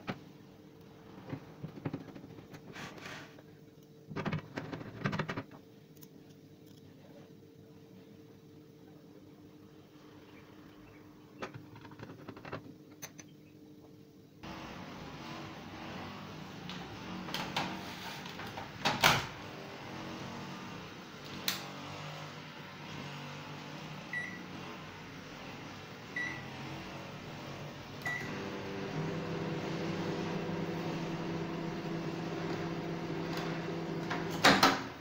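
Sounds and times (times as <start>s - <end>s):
microwave humming: 0.0s - 6.0s, 7.0s - 35.0s
microwave door shutting: 18.4s - 19.4s, 33.2s - 35.0s.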